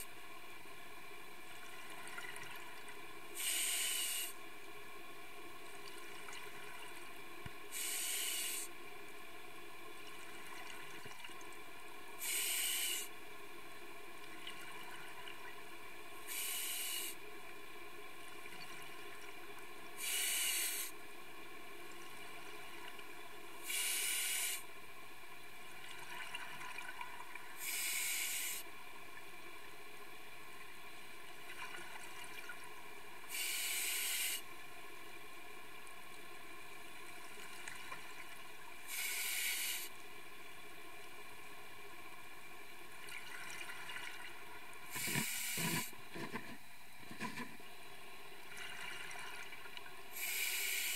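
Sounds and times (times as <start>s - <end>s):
faint background hum: 0.0s - 50.9s
regulator exhalation bubbles hissing: 3.4s - 4.4s, 7.7s - 8.7s, 12.2s - 13.1s, 16.3s - 17.2s, 20.0s - 20.9s, 23.6s - 24.6s, 27.6s - 28.6s, 33.3s - 34.4s, 38.9s - 39.9s, 44.9s - 46.2s, 50.1s - 50.9s.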